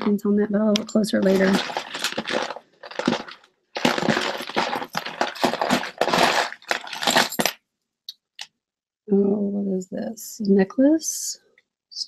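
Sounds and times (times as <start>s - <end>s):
jewelry clattering and clinking: 1.2s - 7.6s.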